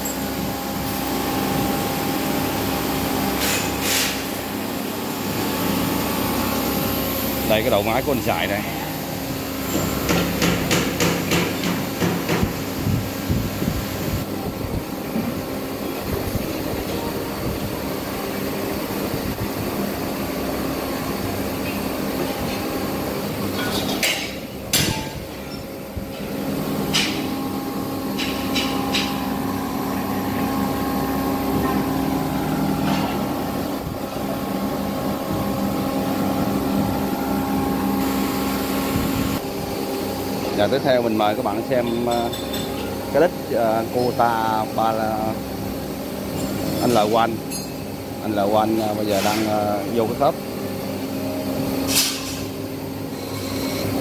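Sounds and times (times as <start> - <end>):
machine hum: 0.0 - 41.8.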